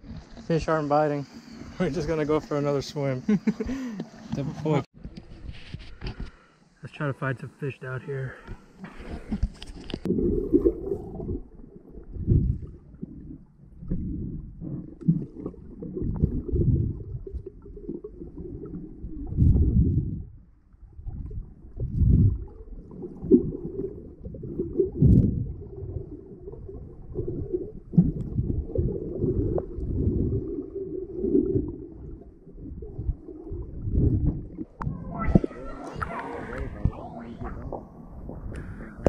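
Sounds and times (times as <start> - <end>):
muffled underwater rumbling and sloshing: 0.0 - 2.6, 8.6 - 39.0.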